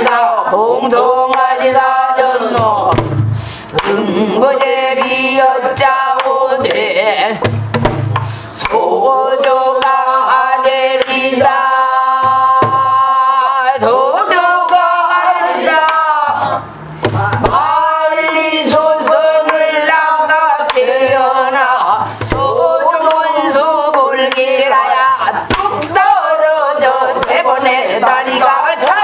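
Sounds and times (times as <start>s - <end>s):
low drumhead thuds: 1.3s - 3.5s, 5.8s - 8.8s, 11.0s - 13.2s, 16.2s - 23.2s
barrel drum stick strikes: 7.4s - 8.8s.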